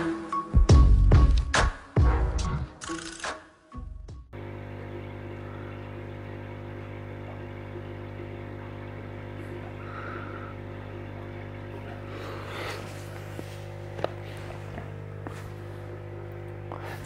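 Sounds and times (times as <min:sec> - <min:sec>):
low electrical hum: 0:04.4 - 0:17.0.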